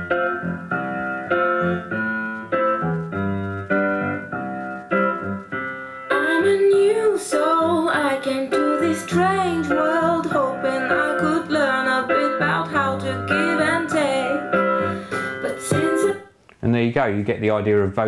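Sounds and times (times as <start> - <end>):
song with singing voice: 6.1 - 16.4.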